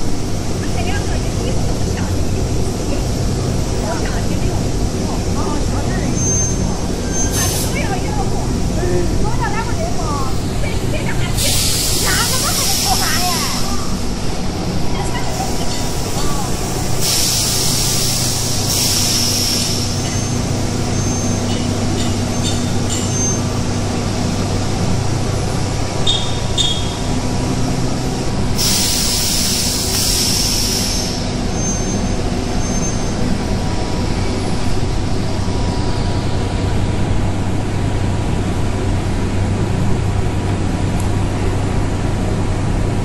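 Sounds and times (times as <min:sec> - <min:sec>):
loud hissing bursts: 0:11.3 - 0:14.0, 0:15.3 - 0:20.0, 0:28.4 - 0:31.5.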